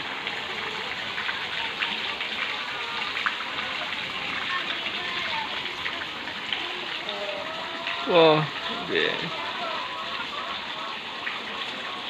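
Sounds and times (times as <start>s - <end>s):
water gushing from a pipe: 0.0s - 12.0s
water splashing on surface: 0.0s - 12.0s
hens clucking: 5.6s - 12.0s.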